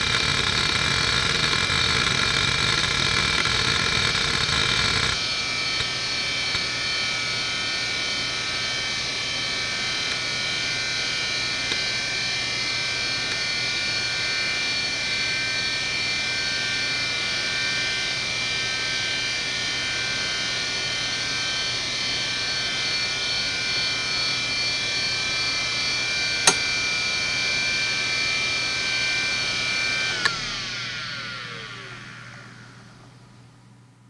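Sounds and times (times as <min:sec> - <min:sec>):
hard drive whine: 0:00.0 - 0:34.0
hard drive sharp click: 0:26.5 - 0:26.7.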